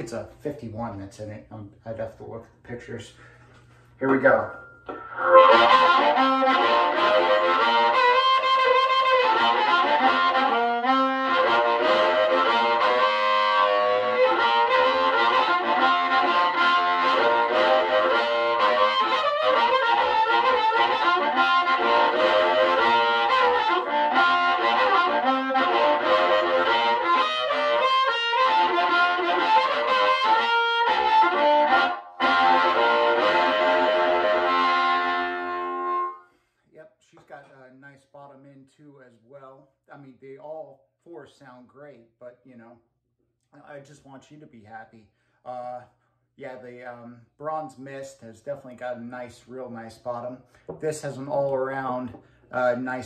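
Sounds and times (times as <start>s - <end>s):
overdriven amplified blues harmonica: 3.2s - 36.5s.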